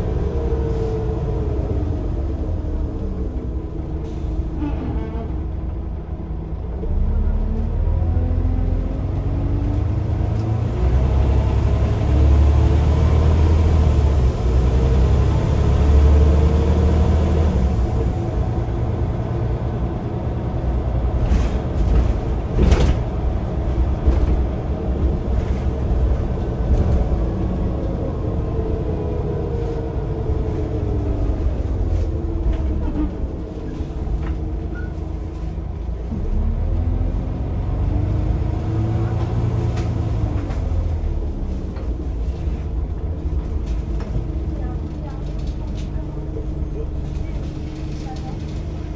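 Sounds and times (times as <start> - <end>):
bus engine rumble and whine: 0.0 - 48.9.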